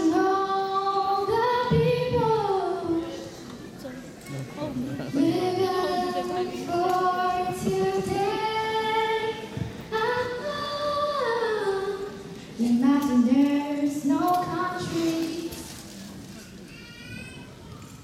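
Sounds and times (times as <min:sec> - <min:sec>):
girl singing: 0:00.0 - 0:03.4, 0:05.0 - 0:15.8.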